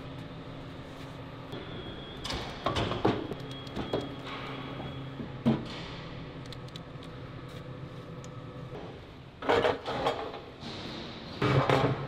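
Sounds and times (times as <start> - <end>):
steady factory hum: 0.0 - 12.0.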